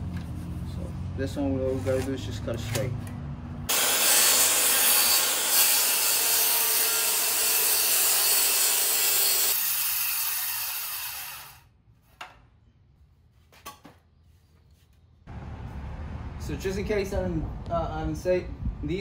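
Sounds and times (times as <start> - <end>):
circular saw cutting wood: 3.7 - 11.7.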